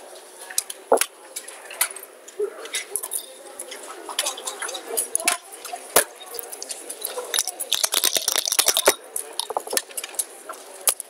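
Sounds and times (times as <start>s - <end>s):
clicks of dice and checkers: 6.4s - 10.2s
dice rattling in a cup: 7.0s - 9.8s
dice clattering onto board: 7.3s - 9.8s.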